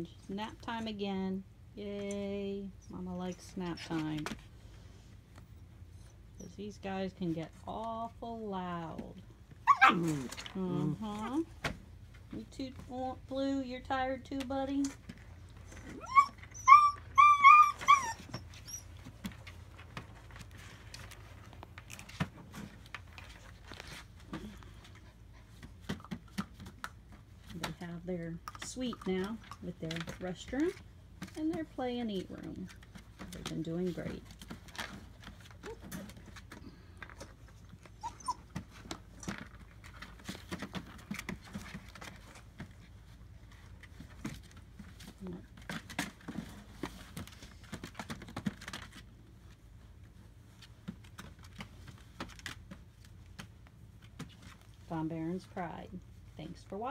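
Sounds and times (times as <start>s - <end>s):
puppies scuffling: 1.8s - 56.9s
paws clicking on plastic: 5.3s - 56.2s
puppy whining: 5.5s - 6.6s, 9.6s - 11.0s, 15.5s - 19.4s, 35.5s - 36.7s, 37.6s - 39.4s
puppy squeaks: 9.6s - 10.0s, 15.7s - 19.1s, 37.9s - 38.5s.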